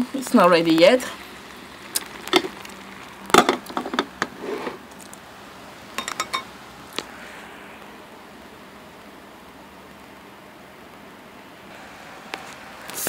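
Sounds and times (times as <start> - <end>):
glass pot lid knocking and ringing: 6.0 - 6.5
utensils and dishes clinking: 6.0 - 6.5.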